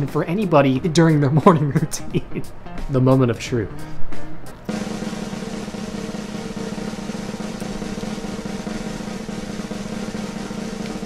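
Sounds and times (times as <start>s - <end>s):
snare drum roll: 4.7s - 11.0s.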